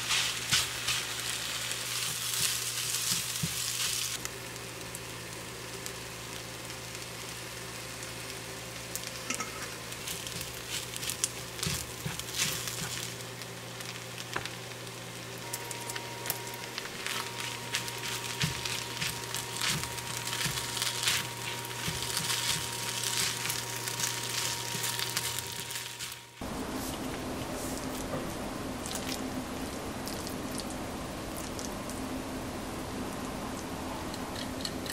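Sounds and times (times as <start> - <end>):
rice sizzling in frying pan: 0.0 - 34.4
low hum: 12.9 - 34.9.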